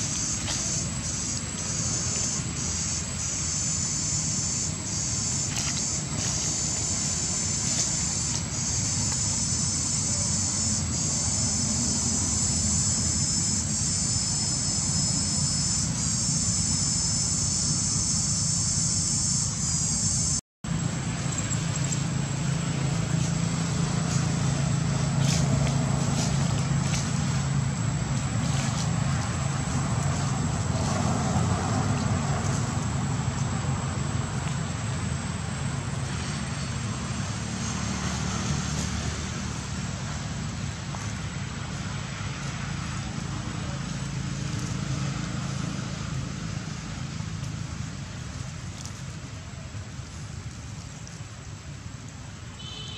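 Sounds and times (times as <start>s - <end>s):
high shrill buzz: 0.0s - 20.4s
distant traffic hum: 0.0s - 52.9s.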